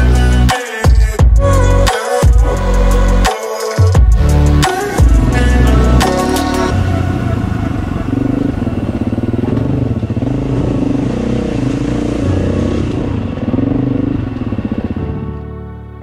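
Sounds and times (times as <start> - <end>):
dirt bike engine revving: 4.2 - 15.4.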